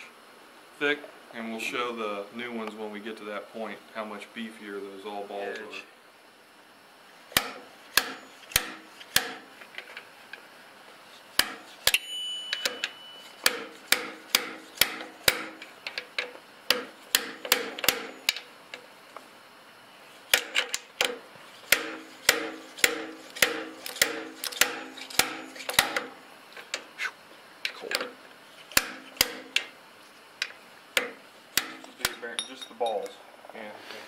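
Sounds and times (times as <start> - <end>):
hammer tapping on steel rod: 11.4 - 15.5, 31.0 - 32.5.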